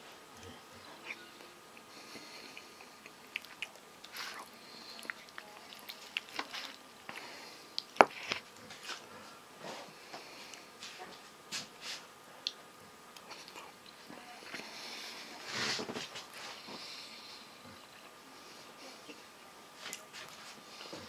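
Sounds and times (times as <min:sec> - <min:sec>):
man chewing and lip smacking: 0:01.2 - 0:08.9, 0:12.4 - 0:14.0
eating clicks: 0:01.7 - 0:08.7.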